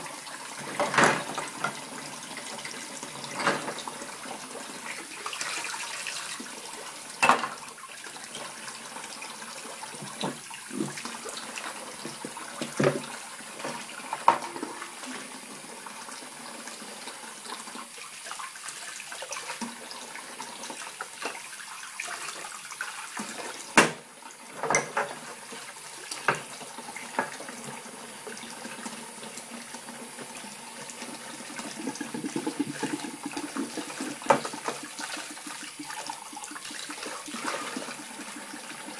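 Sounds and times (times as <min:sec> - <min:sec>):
dishes knocking and clinking: 0:00.7 - 0:01.8, 0:03.3 - 0:03.8, 0:07.2 - 0:07.6, 0:14.2 - 0:14.8, 0:24.6 - 0:25.2, 0:34.2 - 0:34.8
tap running into sink: 0:10.0 - 0:14.8, 0:23.2 - 0:25.3, 0:31.5 - 0:36.1.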